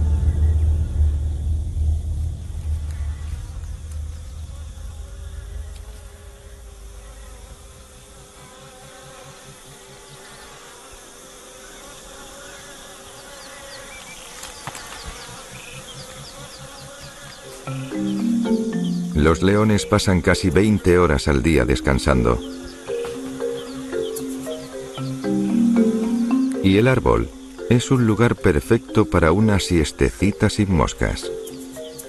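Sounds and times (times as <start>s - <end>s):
low rumble: 0.0s - 9.0s
flies buzzing: 2.8s - 32.0s.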